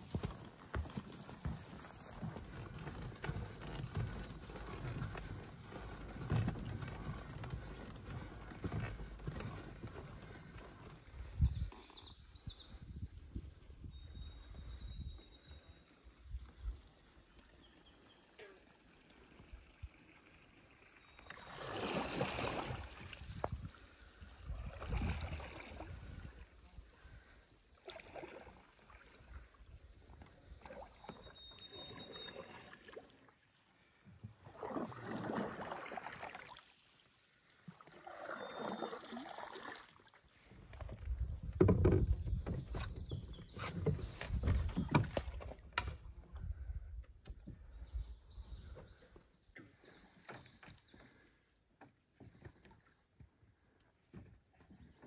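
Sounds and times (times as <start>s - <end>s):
canoe paddle swishing: 34.3s - 39.7s.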